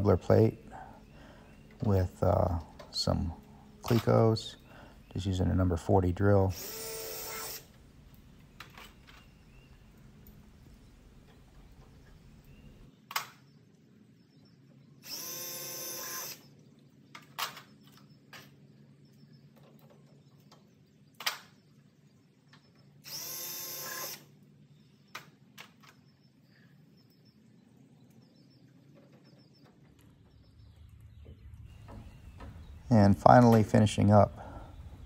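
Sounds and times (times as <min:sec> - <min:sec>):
power drill motor whining: 0:06.5 - 0:07.7, 0:15.0 - 0:16.4, 0:23.0 - 0:24.3.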